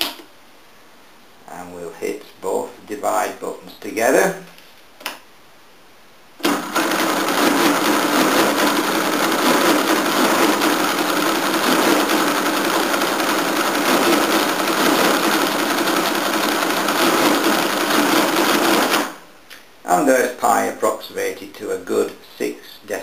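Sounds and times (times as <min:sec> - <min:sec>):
mechanical calculator clattering: 0:06.4 - 0:19.2.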